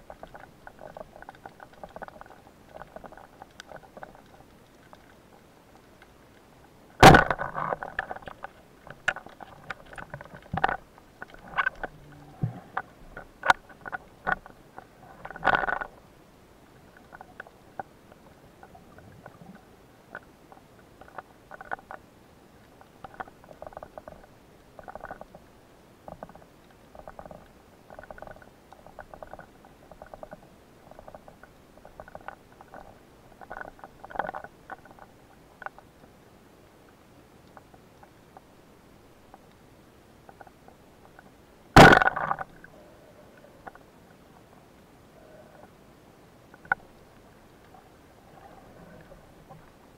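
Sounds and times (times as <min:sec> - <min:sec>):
underwater clicks and knocks: 0:00.0 - 0:05.2, 0:07.0 - 0:16.0, 0:22.8 - 0:25.5, 0:26.1 - 0:35.9, 0:40.2 - 0:42.7.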